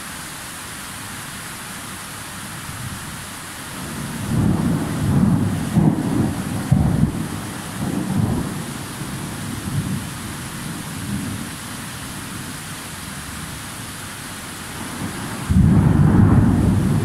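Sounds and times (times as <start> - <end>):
steady rain hiss: 0.0 - 17.0
distant thunder rumble: 4.0 - 10.1, 15.0 - 17.0.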